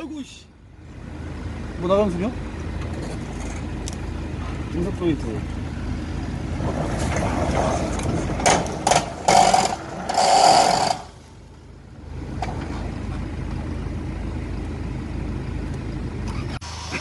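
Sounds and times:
car engine running: 0.0s - 17.0s
grinding screeches: 7.0s - 11.2s.

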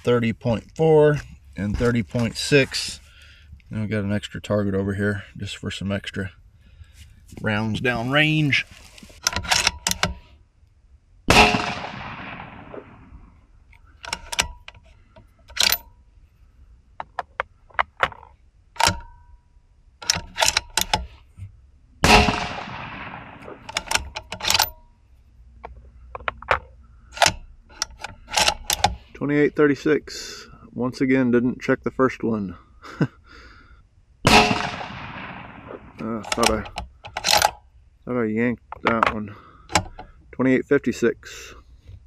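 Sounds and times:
rifle action clicks and clacks: 9.2s - 10.2s, 13.8s - 14.8s, 15.4s - 15.9s, 17.0s - 19.1s, 20.0s - 21.2s, 22.1s - 24.8s, 26.1s - 29.0s, 34.3s - 37.6s
rifle shots echoing: 11.3s - 13.4s, 22.0s - 24.6s, 34.2s - 36.6s.

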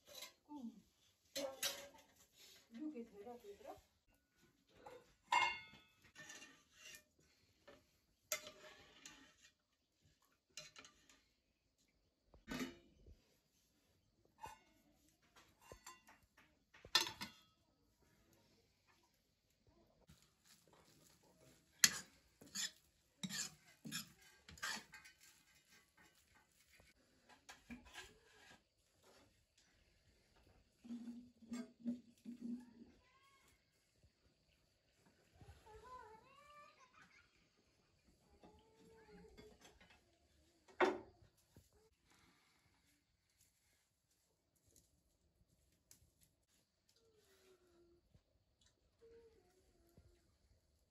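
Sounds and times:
metal dishes and utensils clinking: 0.0s - 0.4s, 1.3s - 2.5s, 4.8s - 7.1s, 8.3s - 9.6s, 10.5s - 11.3s, 14.4s - 17.6s, 21.0s - 26.7s.

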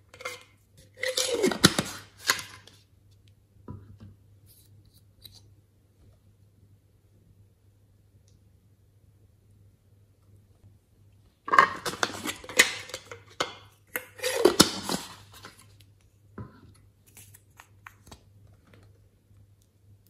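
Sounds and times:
plastic container clicks and scrapes: 11.5s - 13.4s.

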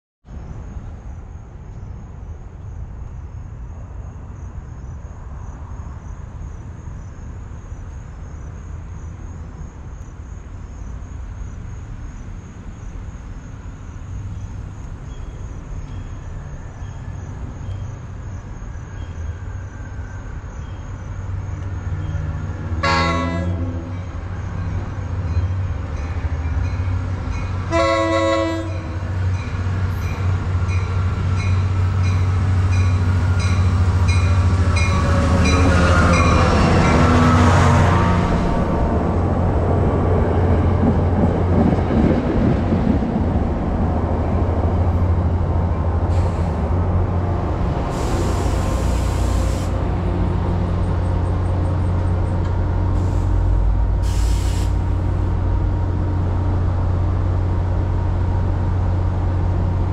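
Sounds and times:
diesel locomotive engine rumble: 0.3s - 59.9s
train horn blasts: 22.8s - 24.1s, 27.6s - 29.2s, 47.9s - 49.8s.

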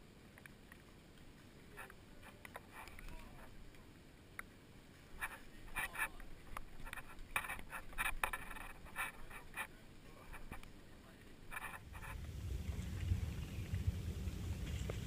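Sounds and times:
scraping and rubbing: 5.2s - 10.6s, 11.5s - 15.0s
low rumble: 11.7s - 15.0s.

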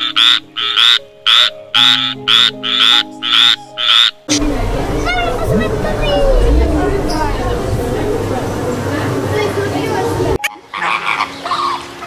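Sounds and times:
faint background music: 0.0s - 12.0s
low steady rumble: 4.3s - 9.4s.

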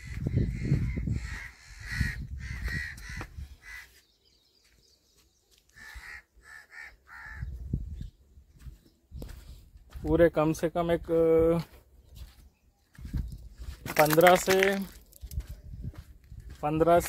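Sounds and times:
crows cawing: 0.0s - 4.0s, 5.7s - 7.6s.

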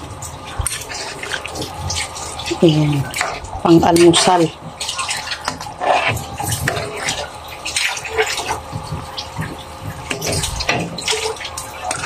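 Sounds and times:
stew sloshing: 0.0s - 12.0s
spoon scraping metal pan: 2.5s - 4.5s, 5.4s - 7.2s.

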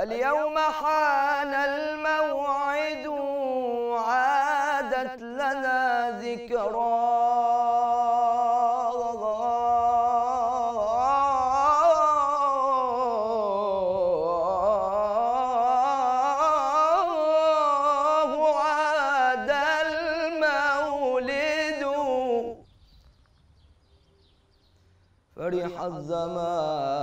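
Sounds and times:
young man singing unaccompanied: 0.0s - 22.8s, 25.3s - 27.0s.

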